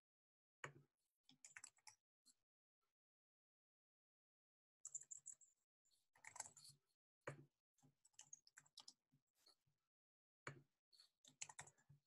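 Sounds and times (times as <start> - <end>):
faint keyboard typing: 4.8 - 5.4, 6.2 - 6.6.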